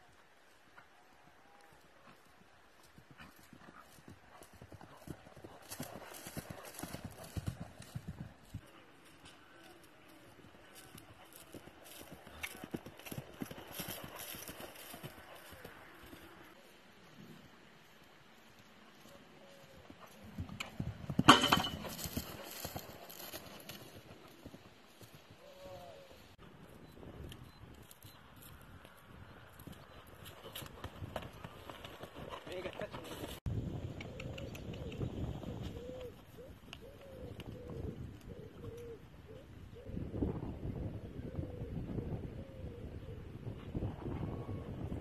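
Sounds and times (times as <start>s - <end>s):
hoofbeats on grass: 1.4s - 16.4s, 17.8s - 26.1s.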